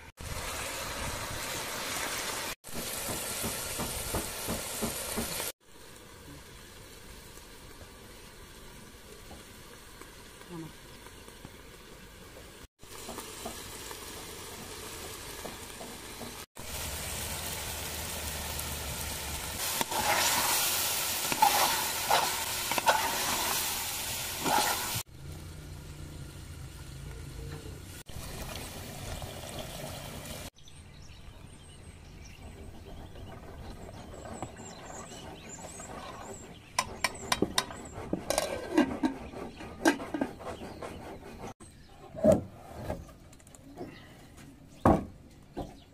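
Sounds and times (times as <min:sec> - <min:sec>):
stew sizzling in pot: 0:00.0 - 0:30.6, 0:32.6 - 0:40.4
ladle stirring: 0:19.6 - 0:25.0, 0:32.8 - 0:40.7.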